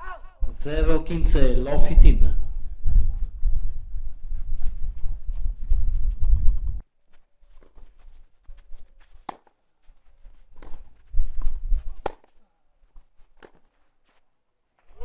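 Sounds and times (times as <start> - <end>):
racket hitting tennis ball: 9.2 - 9.5, 10.6 - 12.4, 13.4 - 13.7.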